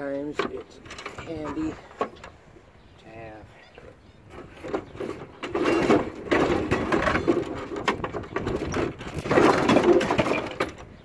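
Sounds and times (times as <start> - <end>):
scraping and clattering on steel: 4.3 - 11.0.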